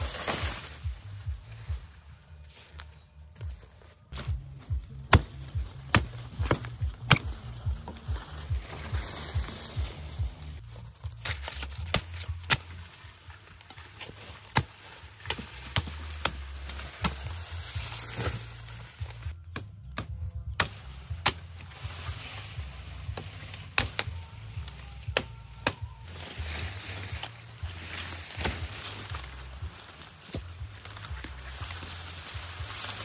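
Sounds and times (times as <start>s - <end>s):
knife chopping sugarcane: 5.1s - 7.3s, 11.2s - 12.8s, 14.0s - 17.2s.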